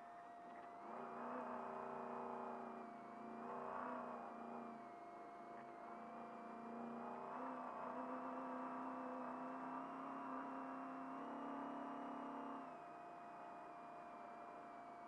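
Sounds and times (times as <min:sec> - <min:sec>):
truck engine accelerating: 0:05.8 - 0:12.6.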